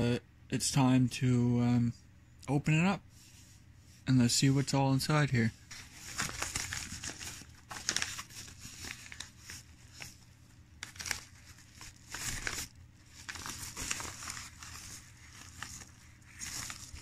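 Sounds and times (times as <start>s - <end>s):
paper mailer crinkling and tearing: 5.7s - 17.0s.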